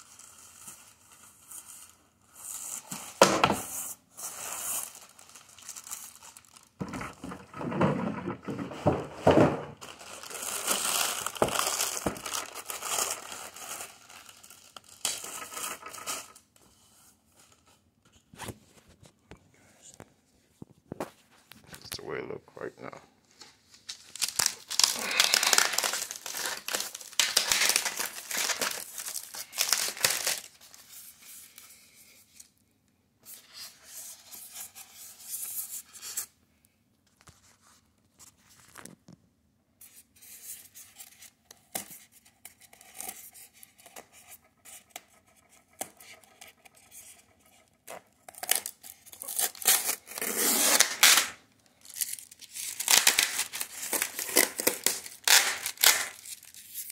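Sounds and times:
plastic wrap crinkling and tearing: 4.2s - 16.6s, 23.7s - 30.9s, 47.8s - 56.9s
styrofoam rubbing and scraping: 52.0s - 56.9s.

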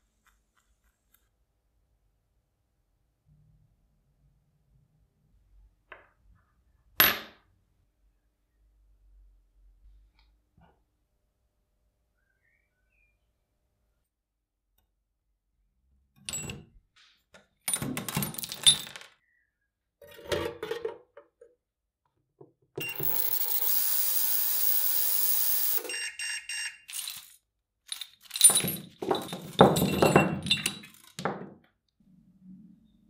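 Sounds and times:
metal parts clinking: 17.7s - 19.2s, 22.8s - 25.8s, 26.9s - 31.2s.

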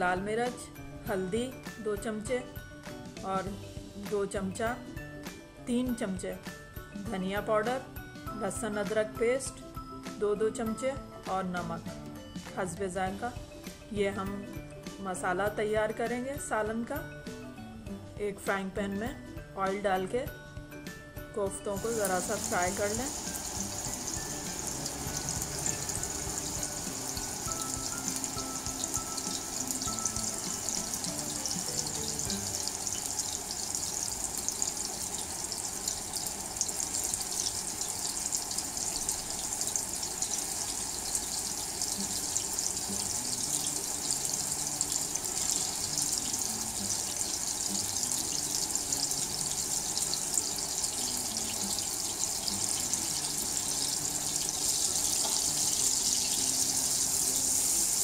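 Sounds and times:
soft background music: 0.0s - 58.0s
meatballs sizzling in oil: 21.8s - 58.0s.

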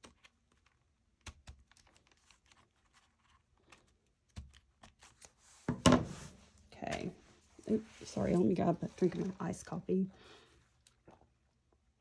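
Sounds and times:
scissors snipping paper: 0.0s - 5.4s.

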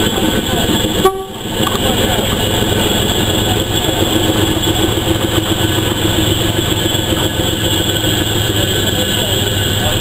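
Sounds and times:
locomotive rumble and hiss: 0.0s - 10.0s.

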